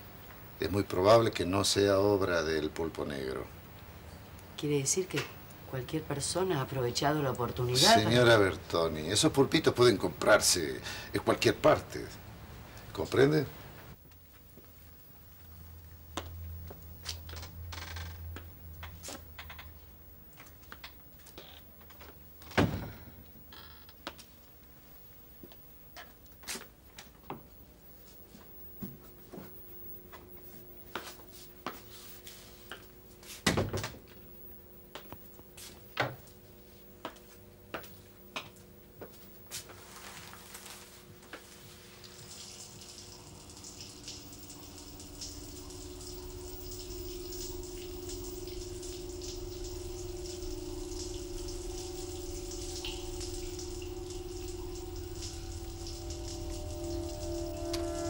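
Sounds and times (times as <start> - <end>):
door thuds: 22.5 - 23.1
water running from tap: 41.2 - 58.0.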